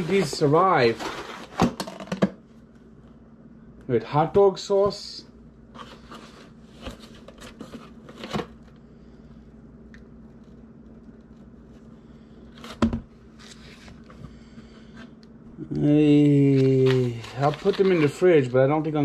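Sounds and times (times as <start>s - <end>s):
cardboard and plastic rustling: 0.0s - 2.1s, 5.7s - 8.8s, 16.2s - 18.9s.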